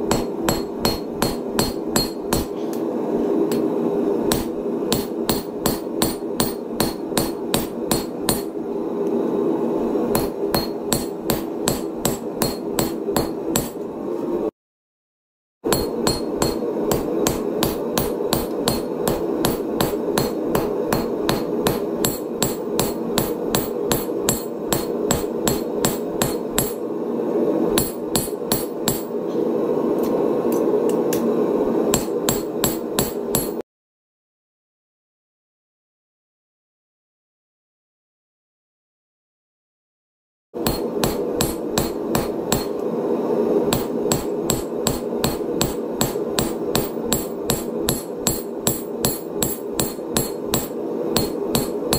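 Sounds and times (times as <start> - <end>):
hammer striking hot steel on anvil: 0.0 - 2.8, 3.5 - 3.7, 4.3 - 8.6, 10.1 - 13.8, 15.7 - 26.9, 27.7 - 29.2, 31.9 - 33.6, 40.6 - 42.8, 43.6 - 51.9
steady low hum: 0.0 - 14.5, 15.7 - 33.6, 40.6 - 51.9.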